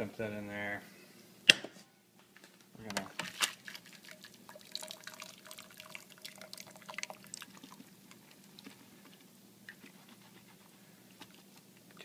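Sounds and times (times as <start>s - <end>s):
water dripping from vegetables: 2.9s - 8.8s.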